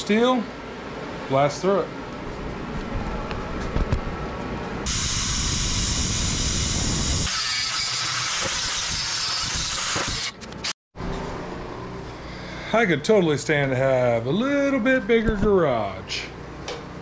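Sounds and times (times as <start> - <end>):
plasma cutter hissing: 4.9 - 10.3.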